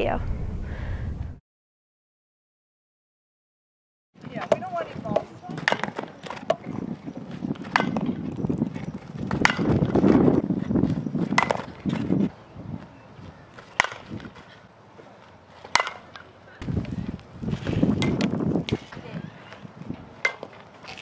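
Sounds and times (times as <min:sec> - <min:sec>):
bat striking balls: 0:04.3 - 0:12.2, 0:13.5 - 0:14.5, 0:15.6 - 0:16.4, 0:17.5 - 0:21.0.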